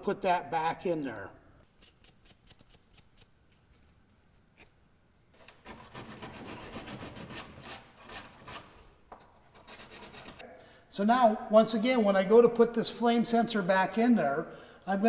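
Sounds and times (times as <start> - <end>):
sanding cloth rubbing metal: 5.6 - 8.7.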